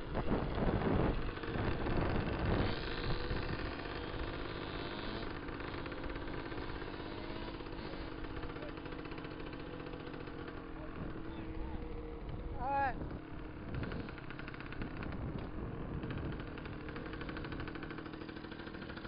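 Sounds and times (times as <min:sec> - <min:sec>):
dirt bike engine running: 0:00.0 - 0:19.0.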